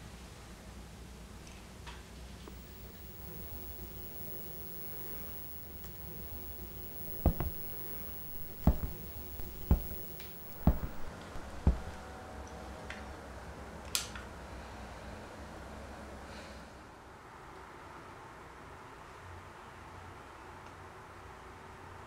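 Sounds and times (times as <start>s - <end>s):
dull heavy thumps: 2.6s - 12.0s
sharp click: 2.6s - 12.0s
lighter knock: 3.2s - 12.0s.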